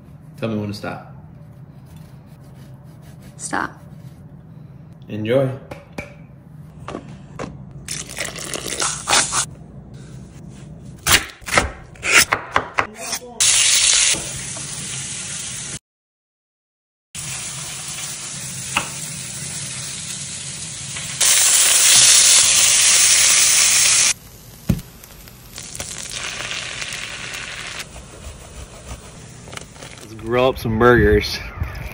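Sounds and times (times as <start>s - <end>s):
loud sizzling hiss: 17.2s - 27.8s
butter and garlic sizzling: 17.2s - 27.9s.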